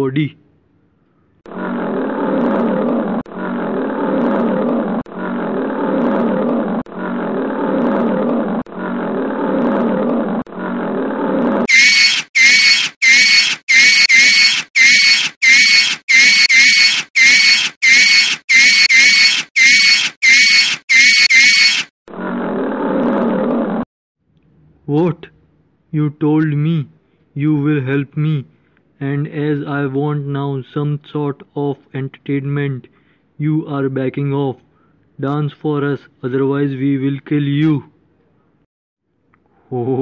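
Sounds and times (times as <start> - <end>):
cartoon lion roar: 1.4 - 11.7, 22.1 - 23.8.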